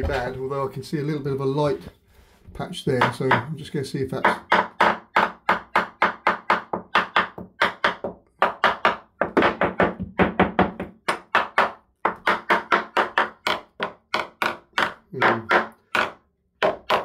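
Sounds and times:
hammer tapping on timber: 0:03.0 - 0:03.5, 0:04.2 - 0:17.0.

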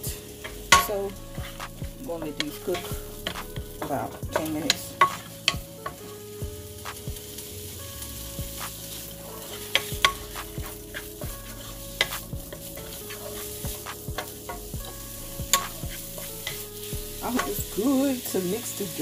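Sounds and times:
vegetables sizzling in a frying pan: 0:00.0 - 0:19.0
wooden spatula tapping and scraping pan: 0:00.4 - 0:06.1, 0:08.6 - 0:18.0.

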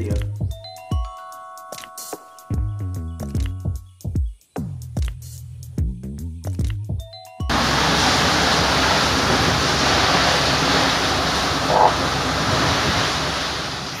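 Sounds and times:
heavy rain pouring: 0:07.5 - 0:14.0.

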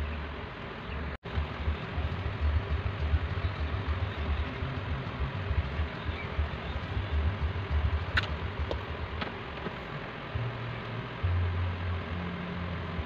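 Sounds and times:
steady low rumble: 0:00.0 - 0:13.0
sharp click: 0:08.1 - 0:09.7.

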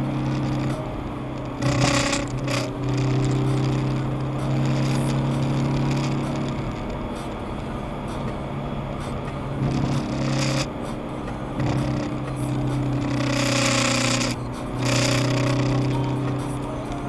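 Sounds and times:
car engine hum: 0:00.0 - 0:17.0
road noise: 0:00.0 - 0:17.0.

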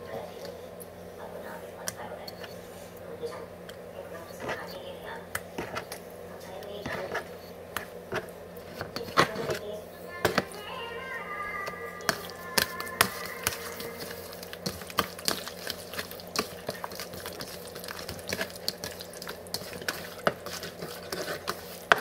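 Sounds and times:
hand squelching meat in marinade: 0:12.2 - 0:22.0.

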